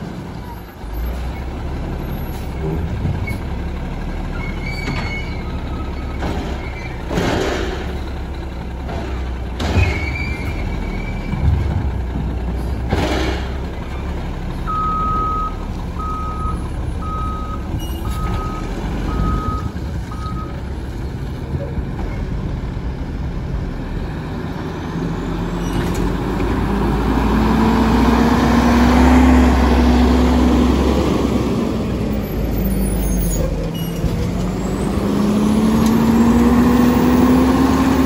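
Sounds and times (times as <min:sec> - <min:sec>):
garbage truck engine running: 0:00.0 - 0:38.0
reversing alarm beeping: 0:14.7 - 0:20.5.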